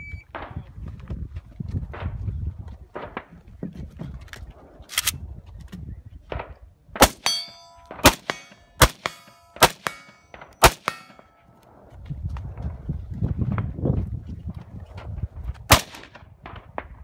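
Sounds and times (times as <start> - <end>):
rifle shots: 7.0 - 11.3, 15.7 - 16.8
steel target clanging: 7.1 - 11.4.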